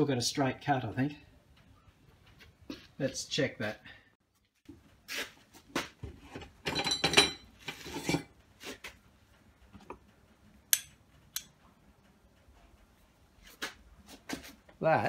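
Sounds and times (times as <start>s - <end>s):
metal ringing: 6.6s - 7.6s.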